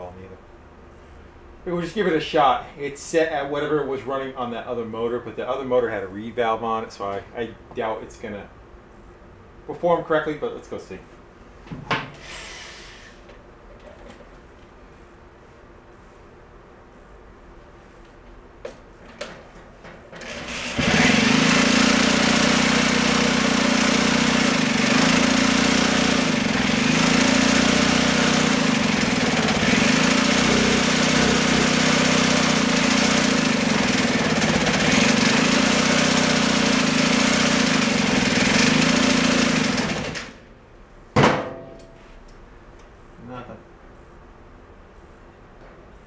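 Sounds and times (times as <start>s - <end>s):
small engine running steadily: 20.2s - 40.5s.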